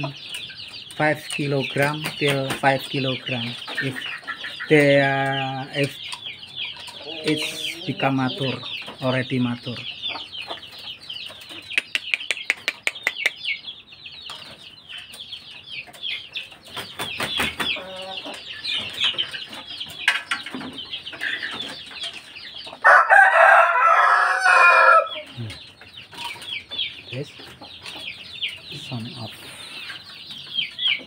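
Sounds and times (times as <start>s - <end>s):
chickens clucking: 0.0s - 31.0s
chicks peeping: 0.0s - 31.0s
sharp clicks: 11.7s - 13.4s
rooster crowing: 22.8s - 25.3s.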